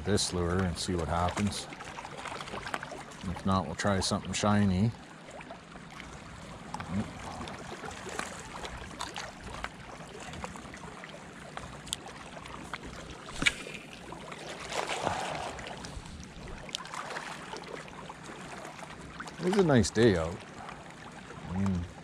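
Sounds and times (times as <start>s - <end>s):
small waves lapping on rocks: 0.0s - 21.9s
wind: 0.0s - 22.0s
fishing rod click: 13.3s - 13.9s.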